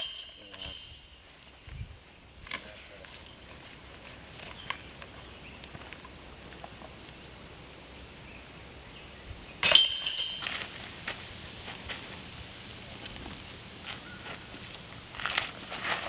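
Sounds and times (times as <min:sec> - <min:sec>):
disc hitting metal basket: 0:00.0 - 0:01.2, 0:09.6 - 0:10.8
chains rattling: 0:00.0 - 0:01.3, 0:09.6 - 0:10.9.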